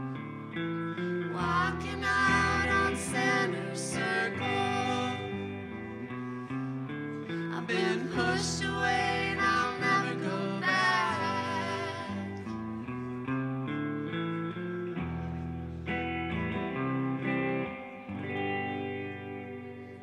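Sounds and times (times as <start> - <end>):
electric guitar: 0.0 - 20.0
woman singing: 1.2 - 5.8, 7.3 - 12.6
man singing: 1.4 - 5.5, 7.5 - 12.2.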